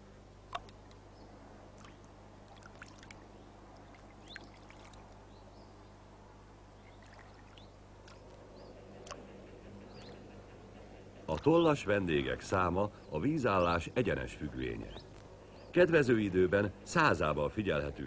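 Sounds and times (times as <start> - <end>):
steady low hum: 0.0 - 18.0
small splashes and drips: 1.7 - 5.3, 6.8 - 8.4.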